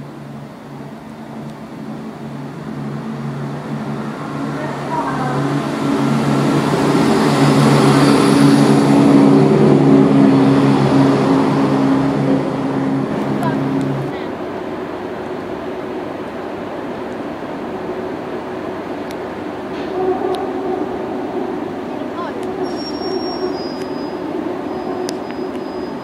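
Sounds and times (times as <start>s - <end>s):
diesel train engine: 0.0s - 26.0s.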